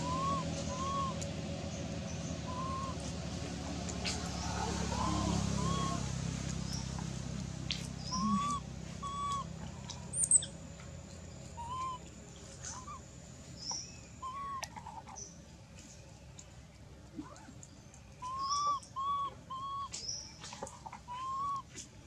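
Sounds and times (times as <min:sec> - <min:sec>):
baby monkey coo calls: 0:00.0 - 0:01.4, 0:02.2 - 0:03.1, 0:04.0 - 0:06.9, 0:08.0 - 0:10.5, 0:11.5 - 0:13.0, 0:13.7 - 0:14.8, 0:18.2 - 0:20.0, 0:21.0 - 0:21.7
faint high bird chirps: 0:08.0 - 0:09.5, 0:10.1 - 0:10.5, 0:17.4 - 0:20.5.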